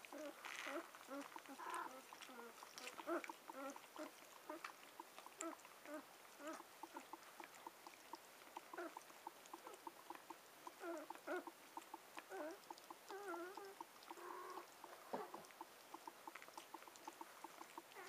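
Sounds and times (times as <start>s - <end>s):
puppies squeaking and whimpering: 0.1s - 4.7s, 12.3s - 15.4s.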